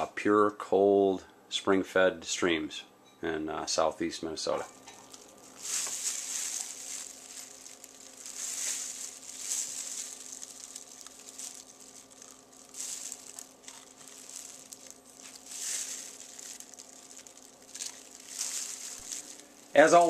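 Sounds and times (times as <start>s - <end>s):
plastic bag crinkling: 5.0s - 20.0s.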